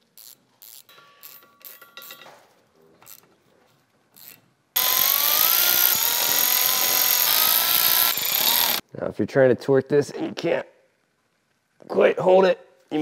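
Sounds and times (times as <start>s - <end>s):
electric ratchet motor whine: 4.2s - 8.8s.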